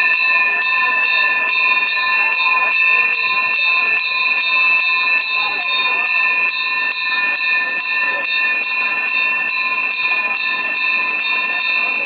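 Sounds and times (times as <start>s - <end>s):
bell ringing in even rhythm: 0.0s - 12.0s.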